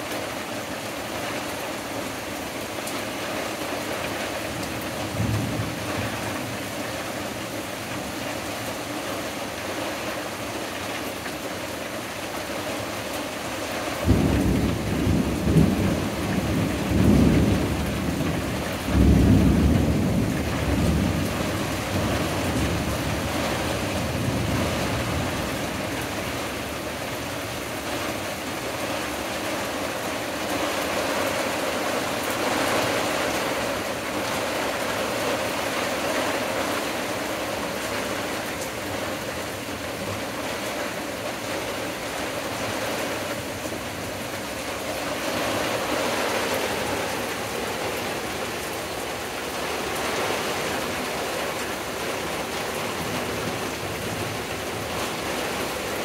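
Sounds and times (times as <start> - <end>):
steady rain: 0.0 - 56.0.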